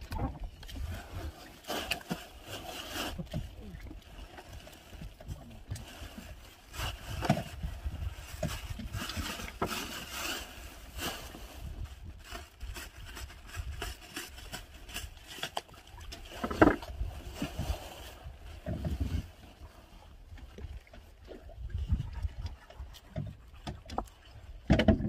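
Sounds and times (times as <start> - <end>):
low wind rumble: 5.4 - 9.5, 16.8 - 23.4.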